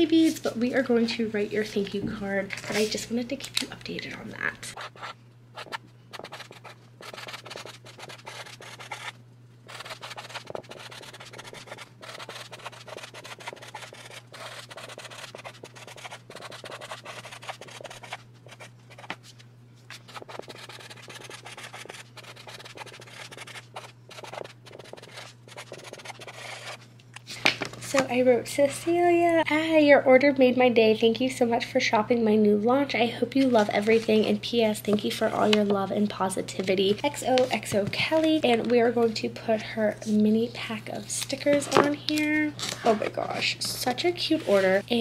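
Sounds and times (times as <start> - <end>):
faint low hum: 0.0 - 45.0
marker scratching on card: 4.8 - 19.2, 20.0 - 26.8.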